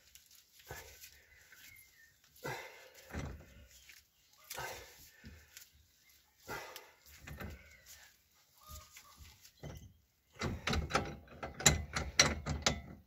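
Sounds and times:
sharp metallic clicks and knocks: 0:09.6 - 0:13.0.

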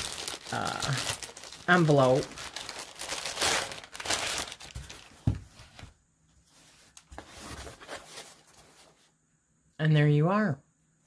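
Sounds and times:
plastic mailer crinkling: 0:00.0 - 0:05.4.

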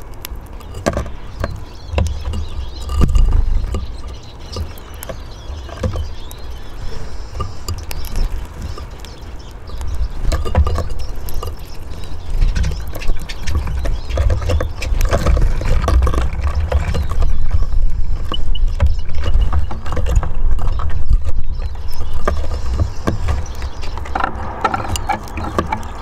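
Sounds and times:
birds pecking and landing: 0:00.0 - 0:26.0
steady low rumble: 0:20.3 - 0:26.0.

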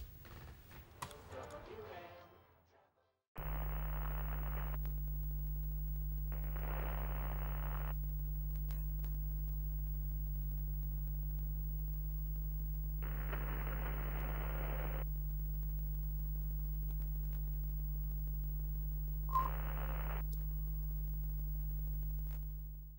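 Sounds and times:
click: 0:03.4 - 0:05.2, 0:06.3 - 0:11.4
low electrical hum: 0:03.4 - 0:22.9.

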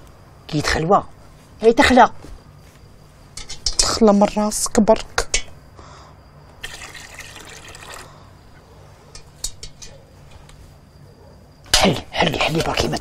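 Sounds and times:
liquid poured into metal pail: 0:06.6 - 0:08.2.

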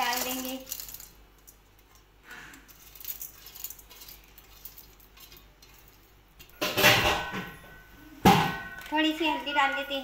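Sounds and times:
steel bowl clattering: 0:00.0 - 0:01.6, 0:02.6 - 0:07.7.

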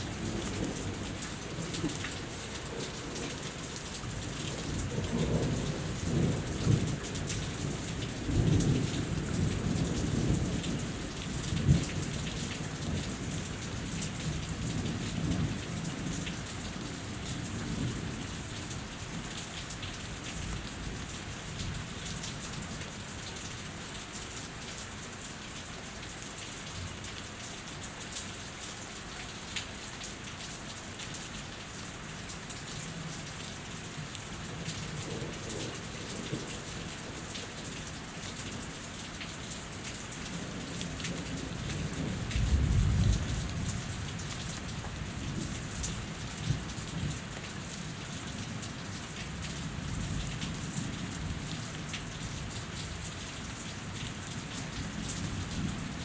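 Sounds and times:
steady rain dripping: 0:00.0 - 0:56.0.

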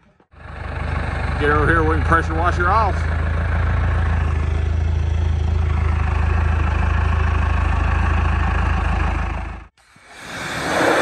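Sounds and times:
forklift engine idling: 0:00.0 - 0:09.8.

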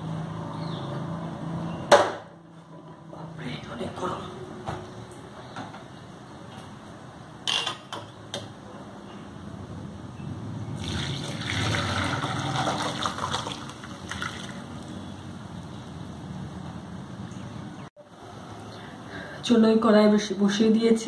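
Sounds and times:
water pouring through strainer: 0:10.8 - 0:14.8.

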